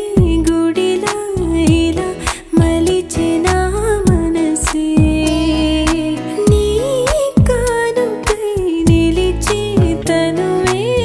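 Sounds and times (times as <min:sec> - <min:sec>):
slow melody: 0:00.6 - 0:07.8
drum hits: 0:01.7 - 0:02.9, 0:04.0 - 0:05.2, 0:05.9 - 0:07.8, 0:09.8 - 0:10.1.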